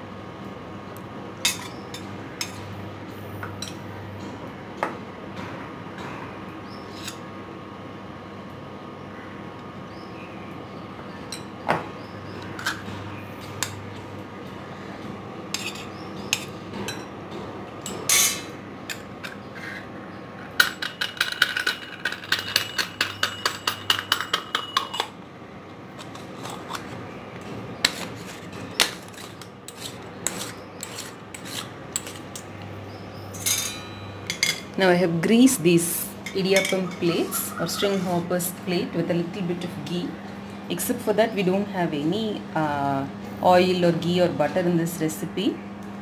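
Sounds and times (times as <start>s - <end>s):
metal clinking and scraping: 33.4s - 34.6s.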